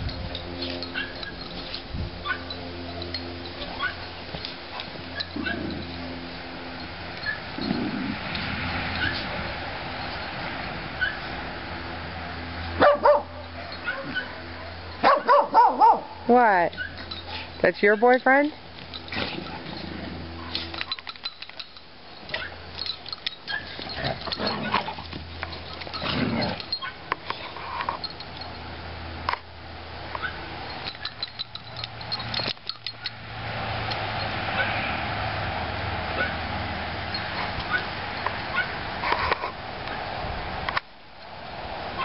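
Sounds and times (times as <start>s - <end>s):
dogs scuffling: 16.7s - 28.1s
dog vocal sounds: 36.1s - 36.5s.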